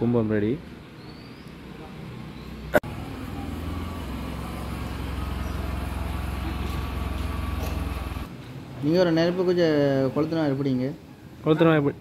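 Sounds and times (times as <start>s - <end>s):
engine rumbling: 1.5s - 8.4s.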